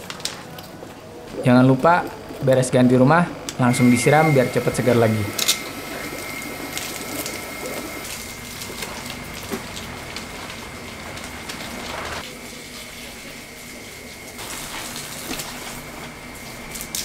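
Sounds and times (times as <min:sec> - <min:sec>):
water splashing on plant leaves: 0:06.2 - 0:12.2, 0:14.3 - 0:17.0.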